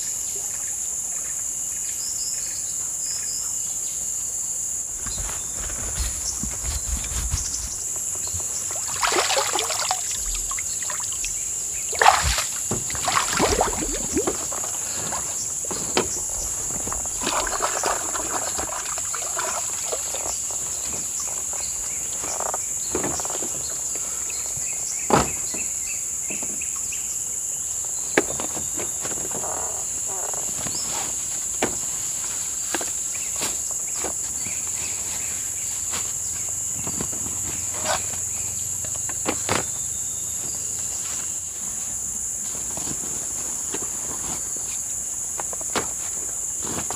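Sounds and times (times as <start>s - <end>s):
forest insects droning: 0.0s - 46.9s
water sloshing and splashing: 5.0s - 23.8s.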